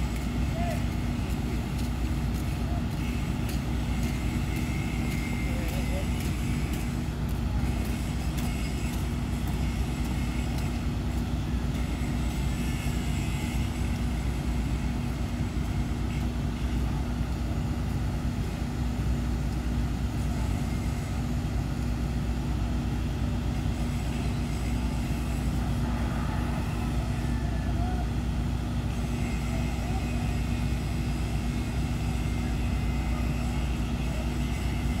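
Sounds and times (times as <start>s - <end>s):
crane diesel engines running: 0.0s - 35.0s.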